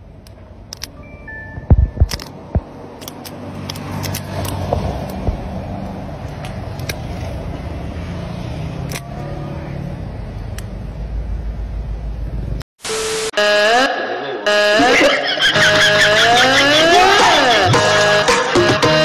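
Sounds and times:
sharp metallic clicks: 1.8s - 5.4s, 8.8s - 9.1s.

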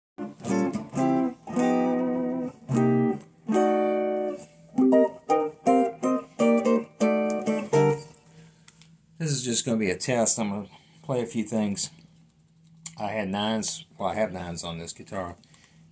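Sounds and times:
electric guitar notes: 0.2s - 8.5s.

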